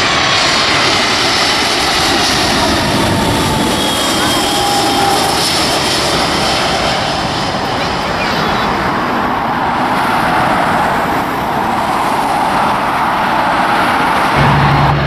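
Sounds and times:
jet airliner engine: 0:00.0 - 0:15.0
cars passing close by: 0:08.4 - 0:15.0.

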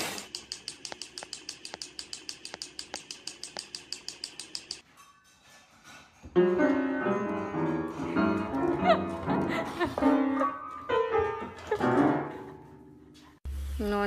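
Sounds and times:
toy train clicking on track: 0:00.2 - 0:04.8
piano notes: 0:06.4 - 0:13.4.

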